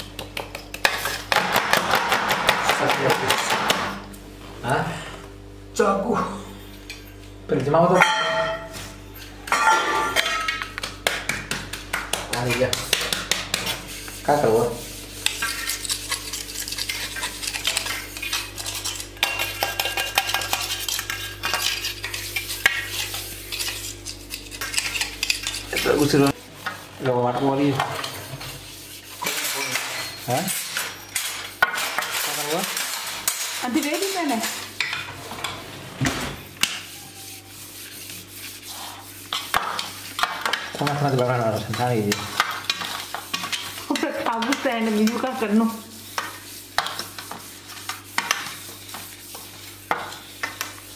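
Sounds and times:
steel utensils scraping on plate: 12.5s - 35.6s, 36.4s - 50.8s
squeaking scrapes: 27.7s - 34.3s.

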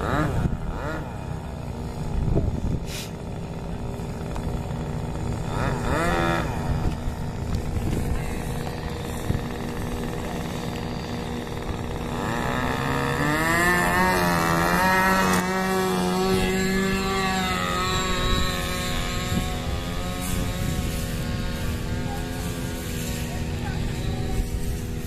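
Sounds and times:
model plane engine whine: 0.0s - 25.0s.

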